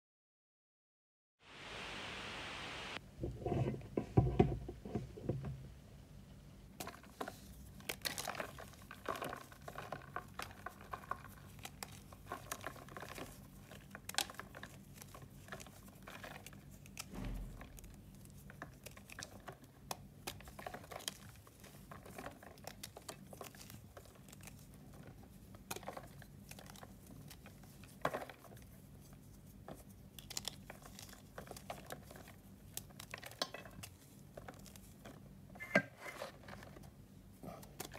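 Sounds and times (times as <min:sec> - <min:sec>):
chalk crunching and crumbling: 0:06.8 - 0:35.2.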